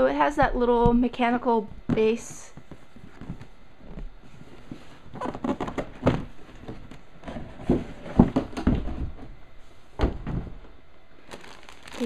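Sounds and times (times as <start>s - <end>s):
cardboard and plastic parts clattering: 5.1s - 9.3s.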